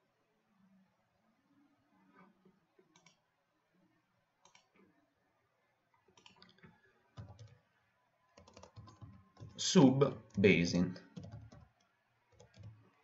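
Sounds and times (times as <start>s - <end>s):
keyboard clicks: 2.9s - 3.2s, 4.4s - 4.7s, 6.2s - 6.6s, 7.2s - 7.6s, 8.4s - 12.9s
mouse clicks: 2.9s - 3.2s, 4.4s - 4.8s, 6.1s - 6.6s.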